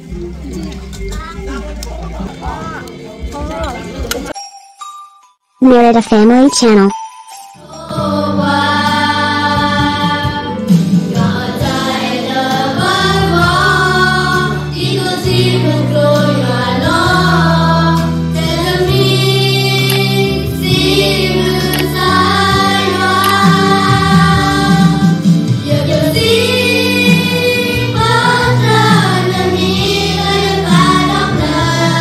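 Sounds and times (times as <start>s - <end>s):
children's choir singing: 7.7s - 32.0s.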